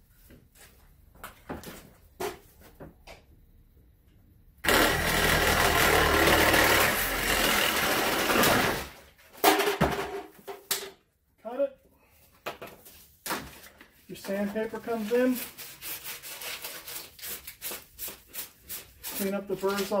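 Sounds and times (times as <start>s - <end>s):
power saw cutting plastic pipe: 4.6s - 9.0s.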